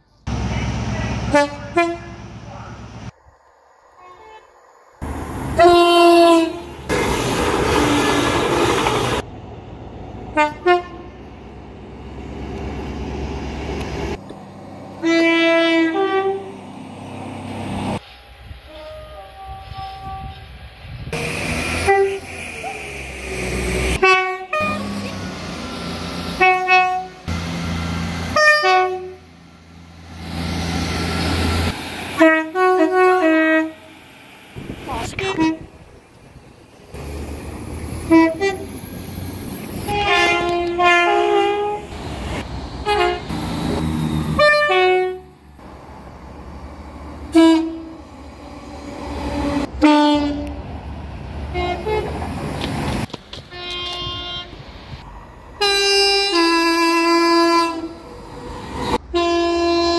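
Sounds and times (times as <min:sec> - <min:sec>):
trains passing: 0:00.0 - 0:59.9
train horn blasts: 0:01.3 - 0:02.2, 0:04.0 - 0:04.5, 0:05.6 - 0:06.8, 0:10.3 - 0:11.3, 0:15.0 - 0:16.5, 0:18.7 - 0:20.4, 0:21.8 - 0:22.4, 0:23.9 - 0:25.2, 0:26.4 - 0:27.3, 0:28.3 - 0:29.3, 0:32.2 - 0:33.9, 0:35.0 - 0:35.8, 0:38.0 - 0:38.7, 0:39.8 - 0:41.9, 0:42.8 - 0:43.3, 0:44.3 - 0:45.4, 0:47.3 - 0:48.1, 0:49.2 - 0:50.6, 0:51.5 - 0:52.1, 0:53.5 - 0:54.6, 0:55.6 - 0:58.0, 0:59.0 - 0:59.9.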